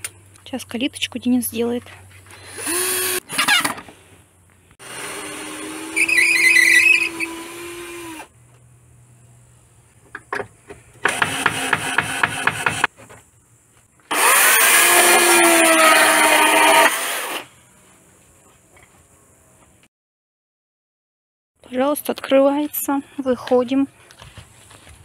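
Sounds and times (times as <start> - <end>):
chainsaw cutting wooden post: 2.4 - 3.8, 4.8 - 8.3, 11.0 - 12.9, 14.1 - 17.5
drill driving screws into wood: 2.4 - 3.8, 4.8 - 8.3, 11.0 - 12.9, 14.1 - 17.5.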